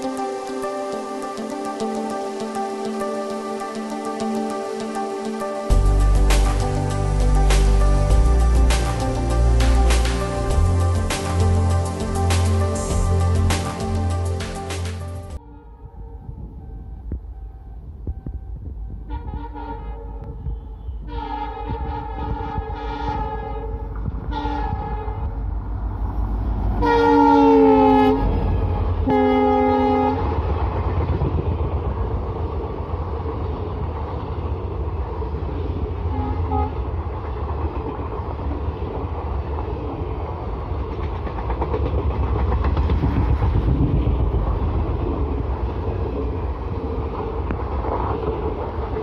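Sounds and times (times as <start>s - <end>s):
train wheels rumbling on rails: 16.0s - 49.0s
locomotive horn blasts: 19.0s - 25.4s, 26.8s - 30.4s, 36.1s - 36.8s.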